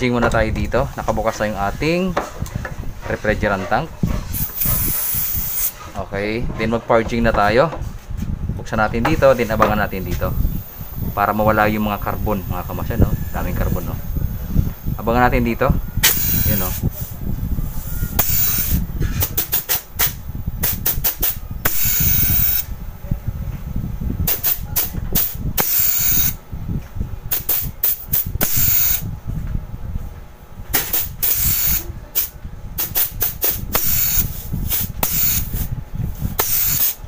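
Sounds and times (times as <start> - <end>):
gas hissing from tube: 4.3 - 5.8, 9.2 - 15.1, 16.0 - 22.7, 24.2 - 26.4, 27.3 - 29.0, 30.8 - 37.0.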